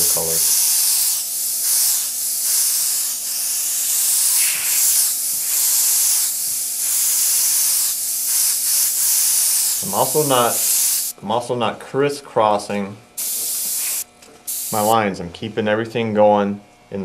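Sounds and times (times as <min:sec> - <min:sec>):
airbrush hissing: 0:00.0 - 0:11.2, 0:13.2 - 0:15.0.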